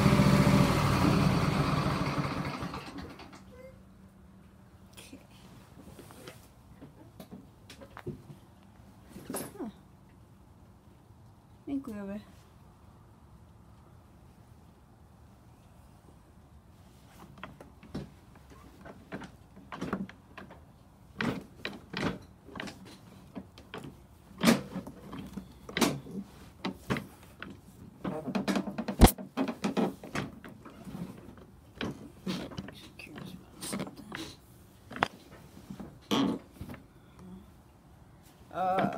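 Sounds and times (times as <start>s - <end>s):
knocks and rattles of handling: 17.0s - 36.8s.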